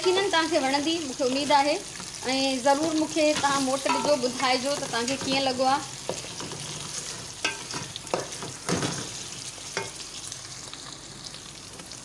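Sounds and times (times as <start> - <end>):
meat sizzling in oil: 0.0 - 12.0
spoon scraping and knocking pot: 3.4 - 9.1.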